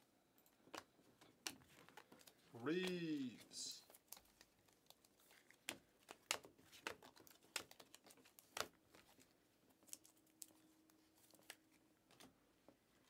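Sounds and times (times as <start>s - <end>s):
cards clicking and snapping: 0.5s - 3.2s, 3.9s - 10.6s.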